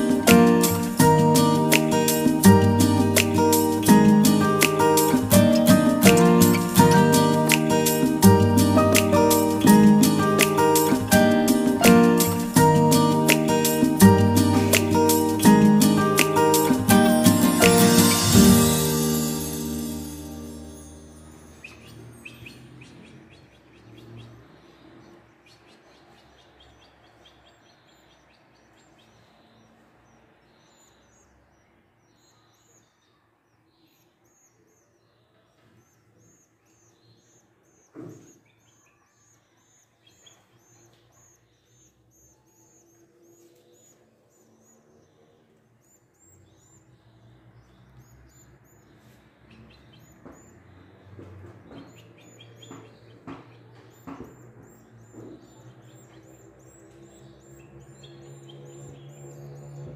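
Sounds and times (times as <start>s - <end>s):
nestlings begging chirps: 0.0s - 59.9s
thump: 38.0s - 38.4s.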